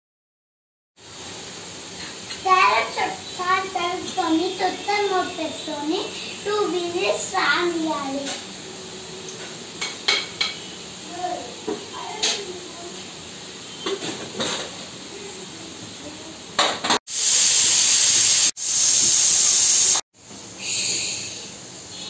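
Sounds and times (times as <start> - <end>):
pressure cooker whistle hissing: 2.4 - 7.1, 10.4 - 11.0, 13.6 - 14.0, 17.1 - 20.0, 20.6 - 22.0.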